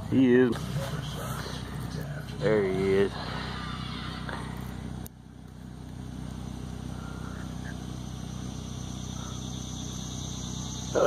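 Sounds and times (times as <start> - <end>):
motor humming: 0.0 - 11.0.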